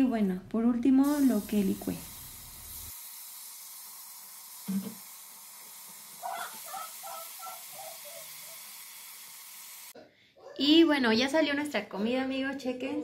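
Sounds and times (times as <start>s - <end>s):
sizzling hiss in a pot: 1.0s - 10.0s.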